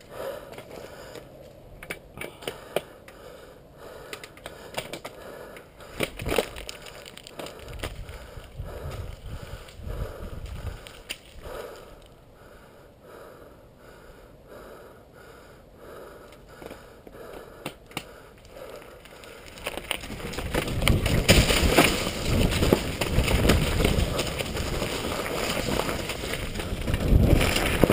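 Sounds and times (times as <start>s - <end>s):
person breathing hard: 0.0s - 1.5s, 2.1s - 20.9s
bike tyres rolling over rock: 5.8s - 11.8s, 18.4s - 27.9s
wind on microphone: 7.7s - 11.6s, 20.1s - 24.9s, 25.6s - 27.9s
bike rattling and knocking: 19.5s - 27.9s.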